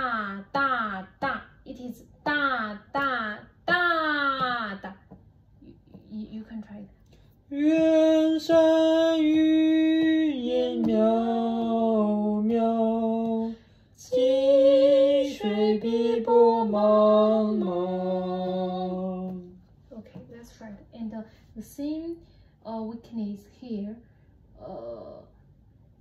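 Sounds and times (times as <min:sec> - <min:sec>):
woman singing unaccompanied: 0:07.5 - 0:19.6.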